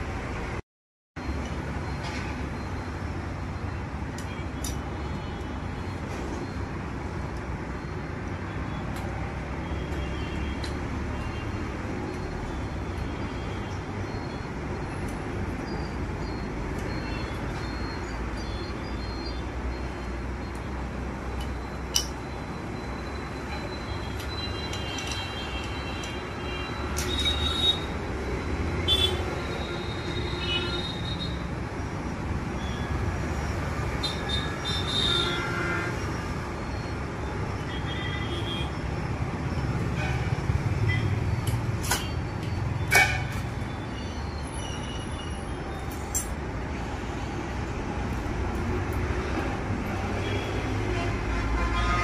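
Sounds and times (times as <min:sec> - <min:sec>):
road traffic rumble: 0:00.0 - 0:00.6, 0:01.2 - 0:52.0
metal parts clicking: 0:24.2 - 0:26.2.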